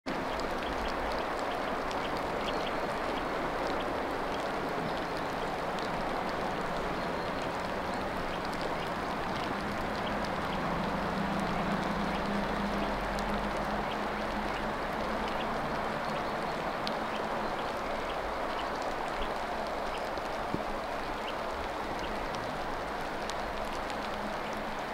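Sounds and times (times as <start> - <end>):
steady rain falling: 0.1 - 24.9.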